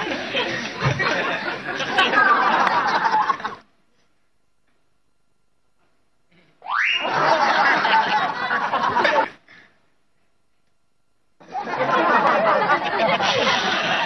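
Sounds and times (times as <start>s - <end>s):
audience laughter: 0.0s - 3.7s, 6.8s - 9.5s, 11.4s - 14.0s.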